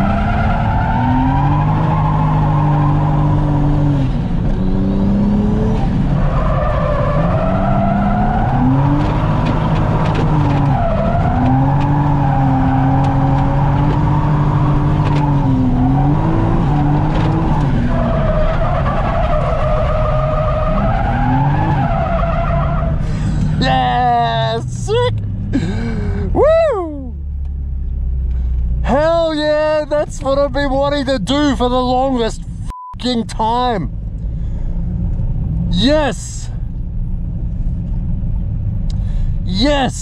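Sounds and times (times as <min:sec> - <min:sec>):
turbocharged engine revving: 0:00.0 - 0:22.0.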